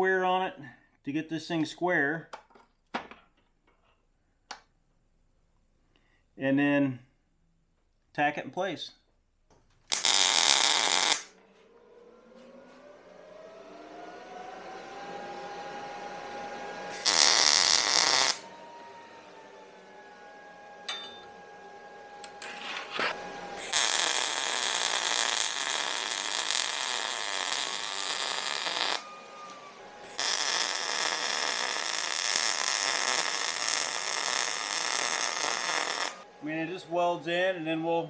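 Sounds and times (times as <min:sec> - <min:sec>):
arc welding hiss: 0:09.9 - 0:11.2, 0:17.0 - 0:18.4, 0:23.6 - 0:29.0, 0:30.1 - 0:36.2.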